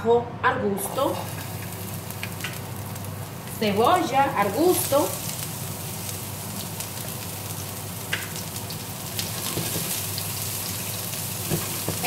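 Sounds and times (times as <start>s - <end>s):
oil sizzling in a frying pan: 0.8s - 12.0s.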